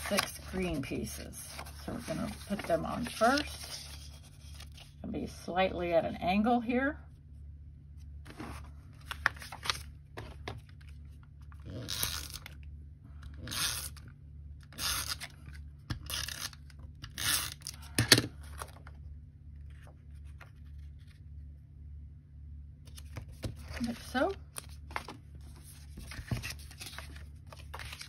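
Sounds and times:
paper pieces handled: 0.0s - 5.0s, 22.9s - 28.0s.

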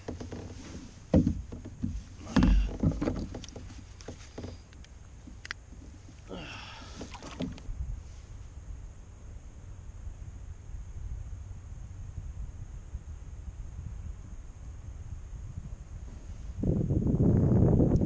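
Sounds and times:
gear knocking on plastic kayak hull: 0.0s - 4.6s
rustling: 0.0s - 6.3s.

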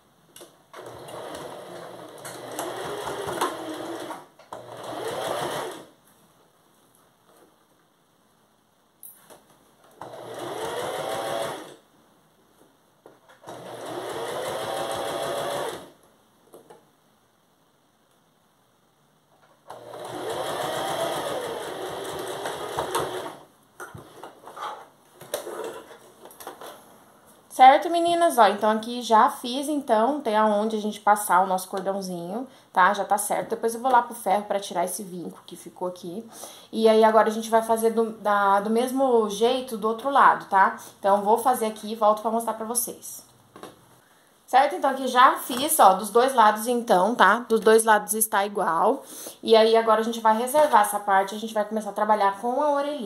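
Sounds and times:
electric sewing machine stitching: 0.8s - 5.9s, 10.0s - 11.8s, 13.4s - 16.0s, 19.7s - 23.5s.

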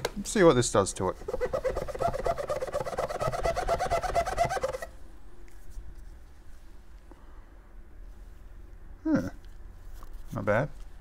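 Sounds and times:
gloved fingers squeaking: 1.2s - 4.9s.

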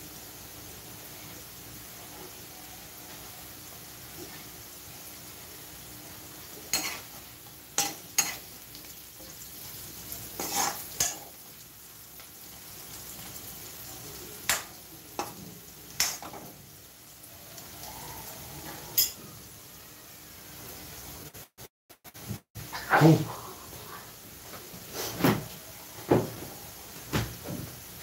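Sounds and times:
vegetables sizzling in oil: 0.0s - 22.9s, 23.5s - 28.0s
spatula scraping a metal pan: 10.4s - 11.3s.

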